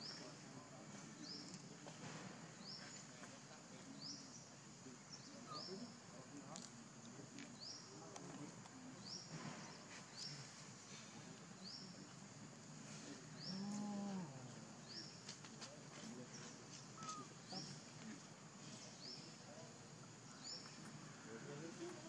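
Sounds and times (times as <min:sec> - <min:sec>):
faint high chirp: 0:16.7 - 0:17.8
animal call: 0:17.0 - 0:17.7.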